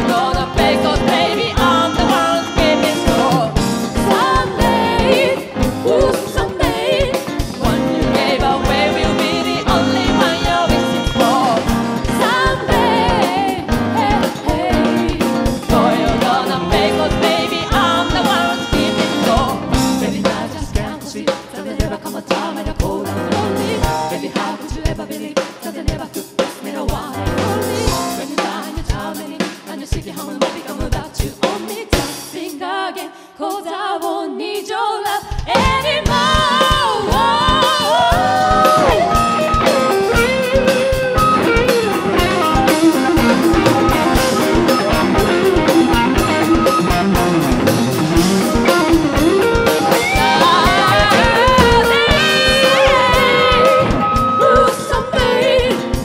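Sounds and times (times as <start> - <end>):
drum kit: 0.0 - 32.6, 35.1 - 56.0
lead and harmony vocals: 0.0 - 56.0
keyboard: 35.7 - 56.0.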